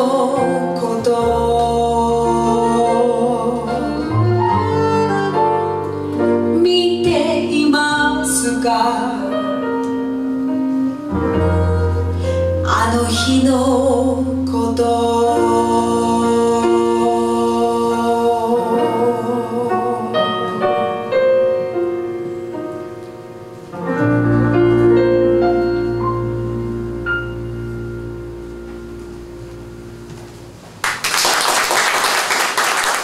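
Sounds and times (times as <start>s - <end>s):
woman singing with vibrato: 0.0s - 4.4s, 6.5s - 21.4s
keyboard chords: 5.3s - 30.8s
audience applause: 30.8s - 33.0s.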